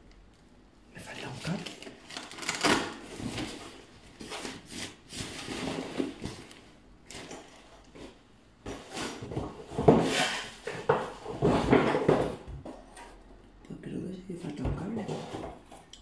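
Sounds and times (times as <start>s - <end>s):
hard items knocking: 8.6s - 12.8s.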